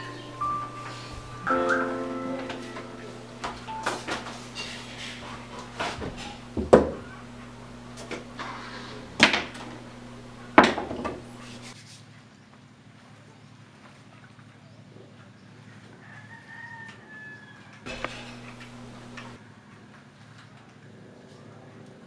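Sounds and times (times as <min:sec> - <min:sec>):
steady low hum: 0:00.0 - 0:11.8, 0:17.9 - 0:19.4
objects clattering on wooden dresser: 0:03.5 - 0:11.6.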